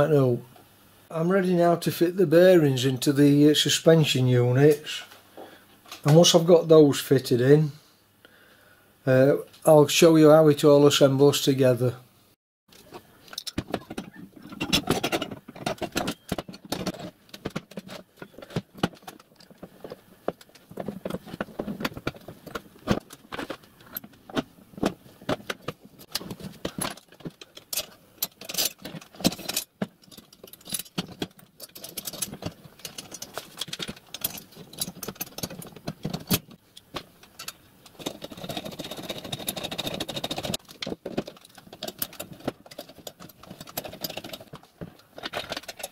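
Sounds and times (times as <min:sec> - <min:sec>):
handling rustle: 0:12.7 - 0:45.9
steel parts clinking and knocking: 0:12.7 - 0:45.9.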